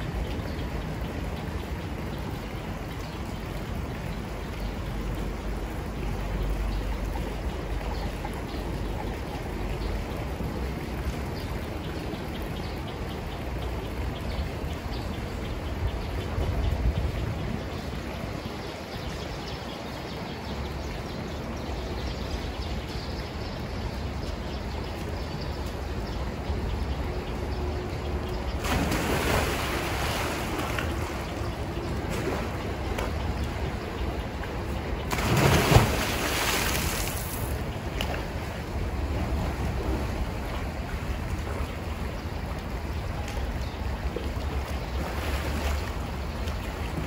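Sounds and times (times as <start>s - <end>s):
rushing water: 0.0s - 47.0s
water splashing: 28.4s - 42.1s.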